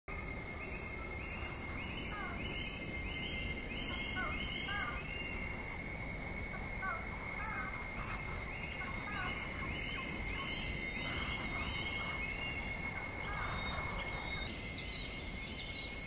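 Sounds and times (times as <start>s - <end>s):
insects singing high tones: 0.2s - 16.0s.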